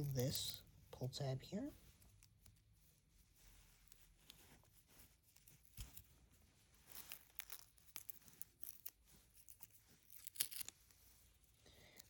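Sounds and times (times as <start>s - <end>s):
packaging tab tearing and crinkling: 6.9s - 10.9s.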